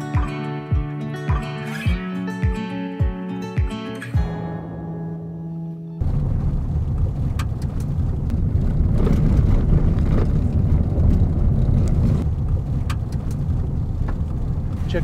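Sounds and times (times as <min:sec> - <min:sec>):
acoustic guitar music: 0:00.0 - 0:06.0
car rumbling on gravel road: 0:06.0 - 0:15.0
sharp clicks: 0:07.3 - 0:08.0, 0:12.8 - 0:13.5.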